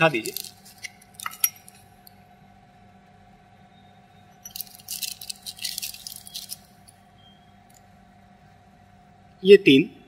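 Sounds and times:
small metal pieces clicking: 0:00.0 - 0:02.2, 0:04.4 - 0:07.0
faint steady hum: 0:00.0 - 0:10.0.

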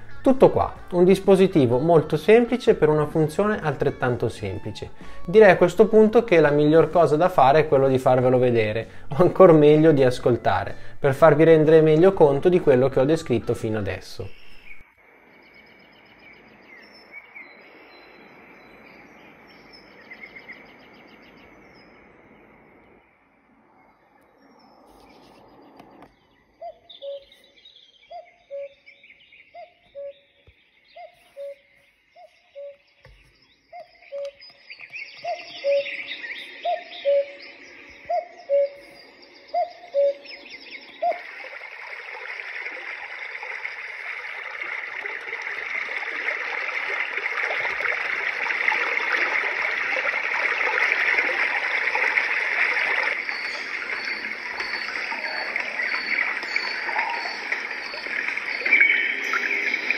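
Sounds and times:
rushing water: 0:00.0 - 0:22.8, 0:39.1 - 0:59.9
high bird chirps: 0:14.2 - 0:14.8, 0:23.8 - 0:42.1, 0:51.6 - 0:59.9.

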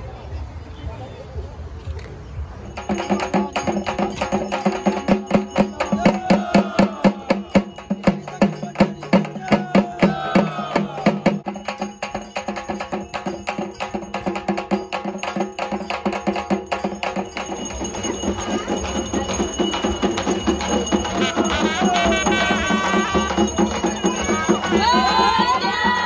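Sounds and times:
fast drumbeat: 0:02.6 - 0:26.0.

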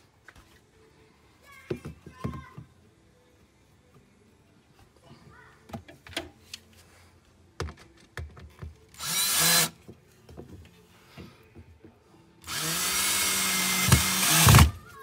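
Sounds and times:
cordless drill driving screw: 0:09.0 - 0:09.7, 0:12.4 - 0:14.8.

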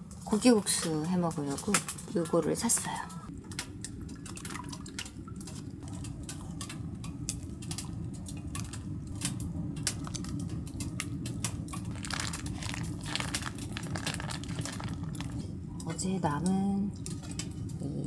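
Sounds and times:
steady low rumble: 0:03.2 - 0:18.0
packaging clicks and crinkles: 0:07.4 - 0:15.5.

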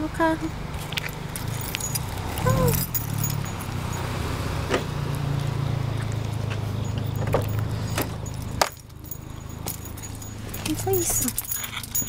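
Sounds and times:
car engine idling: 0:00.0 - 0:12.0
keys clicking: 0:00.8 - 0:04.0, 0:06.4 - 0:12.0.

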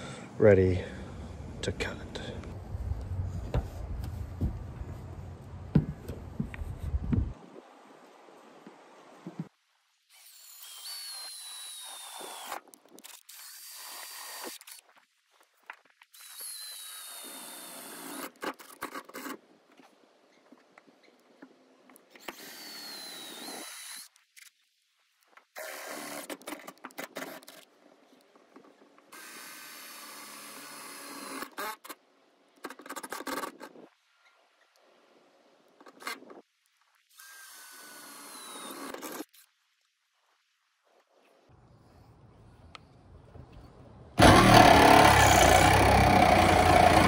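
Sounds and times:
cordless drill drilling metal: 0:10.1 - 0:12.6, 0:22.2 - 0:24.1, 0:44.2 - 0:47.0.

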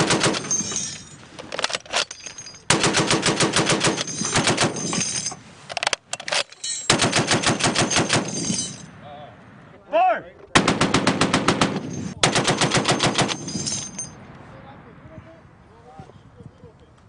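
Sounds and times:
heavy machine gun firing bursts: 0:00.0 - 0:00.5, 0:02.7 - 0:04.8, 0:06.9 - 0:08.3, 0:10.6 - 0:13.4.

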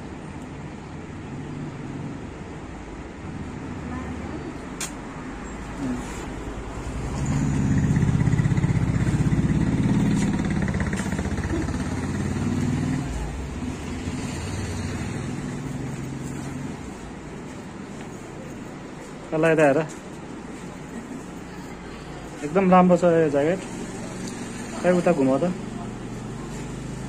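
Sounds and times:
passing vehicle engine hum: 0:00.0 - 0:27.0
sharp click: 0:04.8 - 0:05.0.

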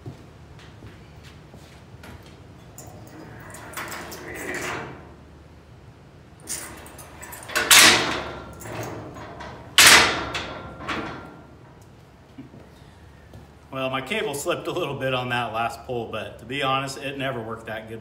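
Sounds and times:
metal gate scraping and sliding: 0:02.7 - 0:05.3, 0:06.4 - 0:11.8
loud metal clangs: 0:06.4 - 0:11.8.

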